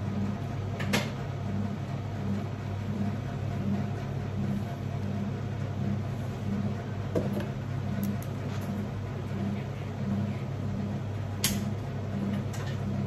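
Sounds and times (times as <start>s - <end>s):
pulsing low mechanical hum: 0.0s - 13.0s.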